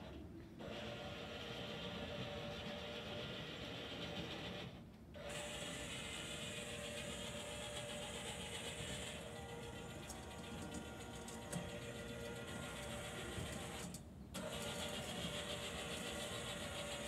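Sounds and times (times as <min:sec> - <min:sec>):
electric motors whining: 0:05.2 - 0:17.0.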